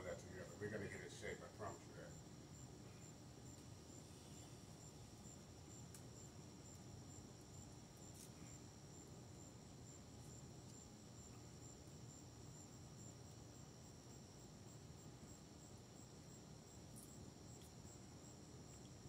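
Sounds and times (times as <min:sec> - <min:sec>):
crickets chirping: 0:00.0 - 0:19.0
faint ticks: 0:05.9 - 0:06.1, 0:16.9 - 0:17.8, 0:18.6 - 0:19.0.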